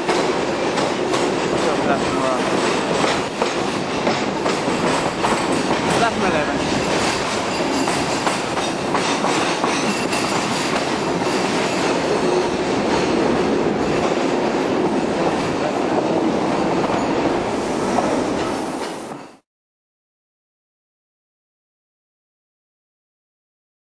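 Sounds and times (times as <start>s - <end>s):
clattering over rail joints: 0.0s - 16.2s
train wheels rumbling on rail: 0.0s - 19.4s.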